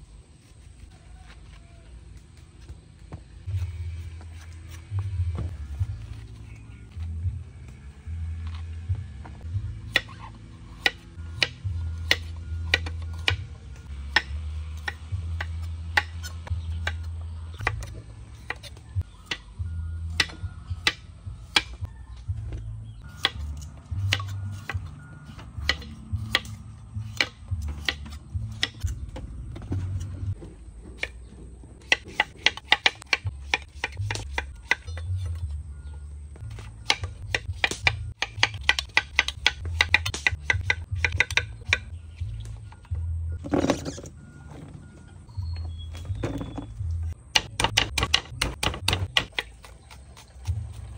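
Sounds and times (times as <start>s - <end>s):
soft background music: 3.2s - 30.4s, 31.1s - 50.9s.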